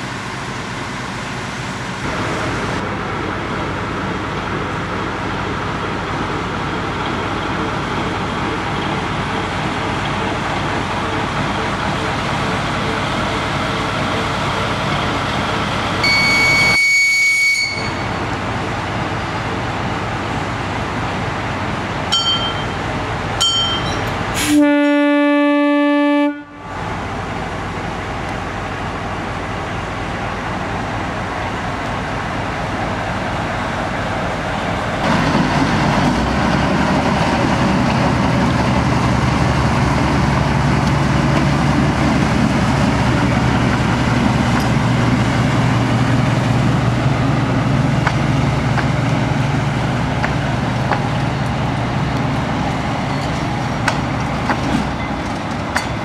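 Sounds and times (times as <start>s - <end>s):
diesel engine droning: 0.0s - 56.0s
locomotive horn blast: 16.0s - 18.2s, 24.4s - 26.7s.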